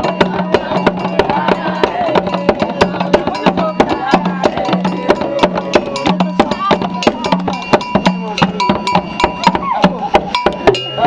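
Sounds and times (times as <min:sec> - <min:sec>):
children singing: 0:00.0 - 0:07.4
rhythmic handclapping: 0:10.2 - 0:11.0.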